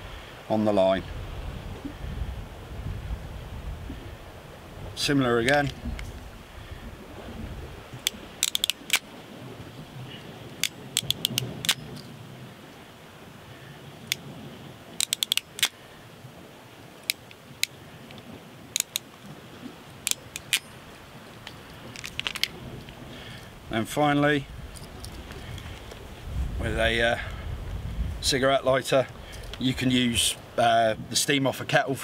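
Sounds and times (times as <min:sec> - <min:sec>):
wind hiss: 0:00.0 - 0:32.0
crimping pliers clicking: 0:08.0 - 0:09.0, 0:10.6 - 0:11.8, 0:15.0 - 0:15.7, 0:18.8 - 0:19.1, 0:20.0 - 0:20.7.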